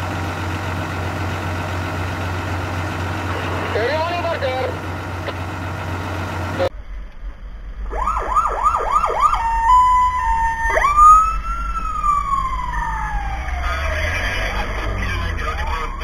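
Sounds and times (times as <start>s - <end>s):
low engine rumble: 0.0s - 16.0s
fire truck siren: 7.9s - 16.0s.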